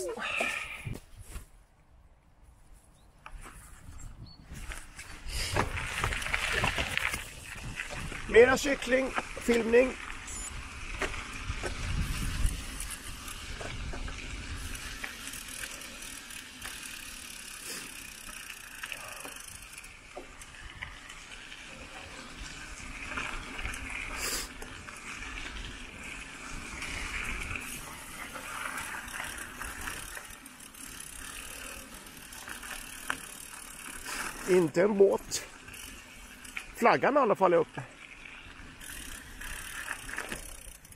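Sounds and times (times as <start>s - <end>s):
bike tyres rolling: 2.9s - 40.9s
wind buffeting microphone: 3.6s - 8.4s, 10.2s - 15.0s.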